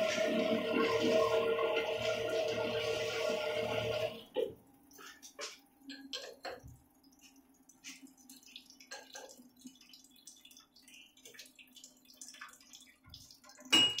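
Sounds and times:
oil expeller humming: 0.0 - 4.2
light ticks and drips: 4.3 - 14.0.

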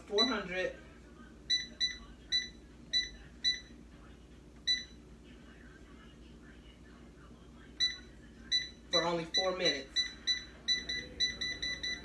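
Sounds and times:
short electronic beeps: 7.8 - 12.0.

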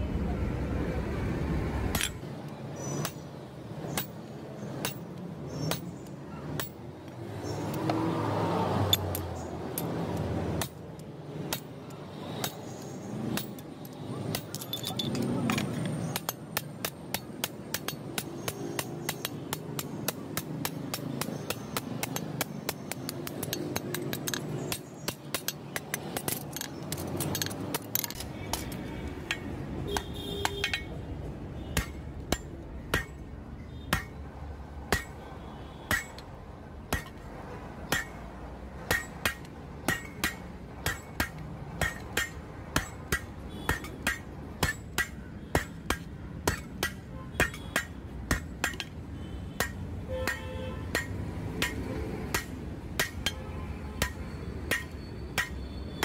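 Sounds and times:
hammer striking metal on anvil: 31.8 - 33.3, 33.9 - 34.2, 34.9 - 35.2, 35.9 - 37.2, 37.9 - 38.2, 38.8 - 49.0, 49.6 - 56.0.

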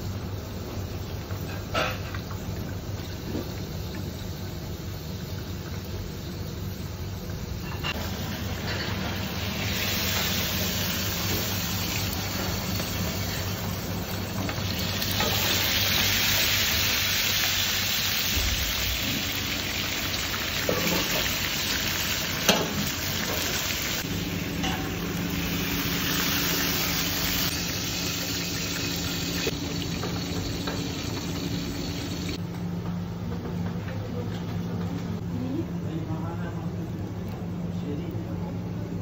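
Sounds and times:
fish frying in hot oil: 0.0 - 32.4.

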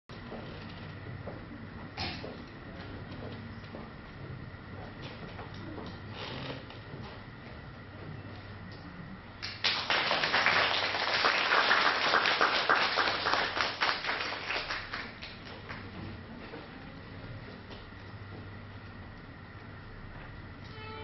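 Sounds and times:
audience applauding: 9.4 - 15.9.

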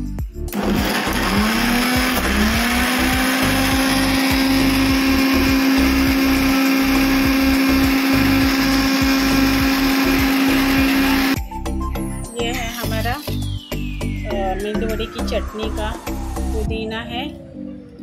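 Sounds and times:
mixer grinder motor whine: 0.5 - 11.4.

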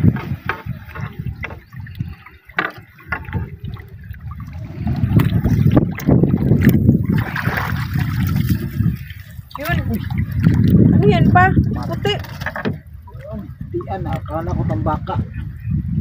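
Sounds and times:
taps and knocks on boat: 0.0 - 1.8, 2.5 - 3.5, 12.0 - 12.8
water splashing and trickling: 0.0 - 16.0.

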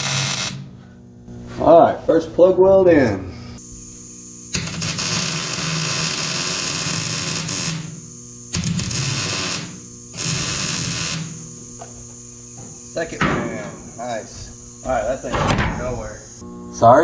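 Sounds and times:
welder arc crackling: 0.0 - 0.7, 3.6 - 17.0
electrical hum: 0.0 - 17.0.

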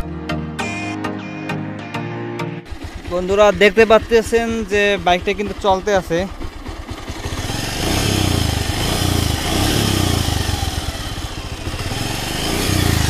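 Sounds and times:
motorcycle engine idling: 2.6 - 13.0.

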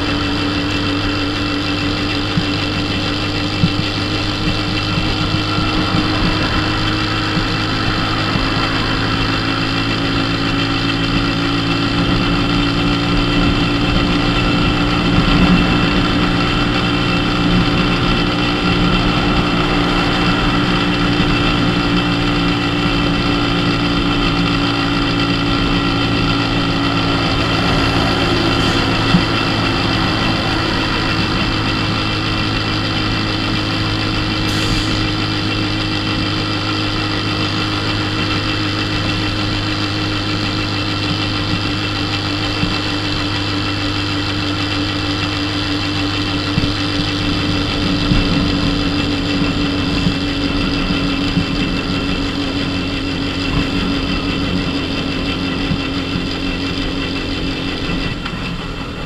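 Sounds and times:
moped engine droning: 0.0 - 59.0.

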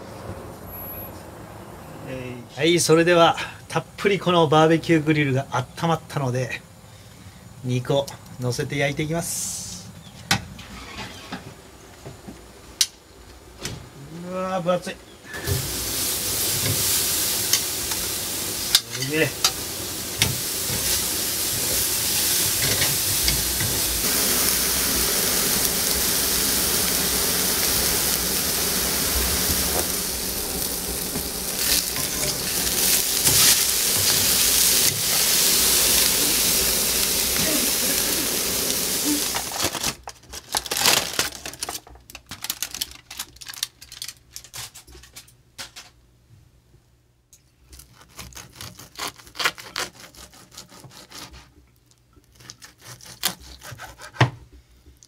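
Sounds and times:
steaks sizzling on grill: 15.3 - 39.7.

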